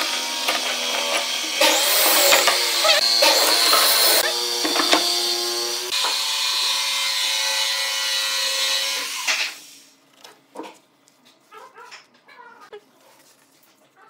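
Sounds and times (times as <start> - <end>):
power tool motor humming: 0.0 - 9.6.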